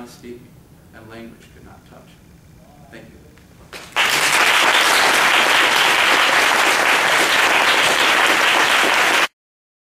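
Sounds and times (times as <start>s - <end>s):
audience applauding: 3.8s - 9.4s.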